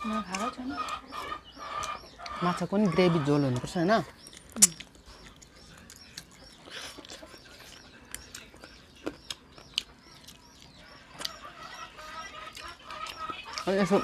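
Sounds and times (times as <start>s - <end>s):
chickens clucking: 0.0s - 14.0s
chicks peeping: 0.0s - 14.0s
eating smacks and clicks: 3.5s - 11.4s.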